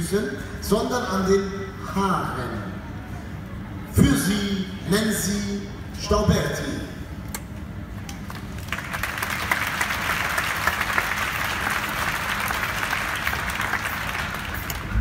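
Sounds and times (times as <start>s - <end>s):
audience applauding: 8.2s - 15.0s.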